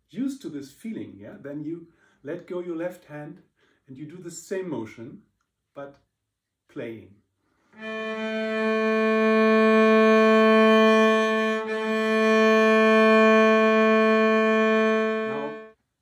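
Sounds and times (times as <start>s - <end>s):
cello bowed long note: 7.8s - 15.8s.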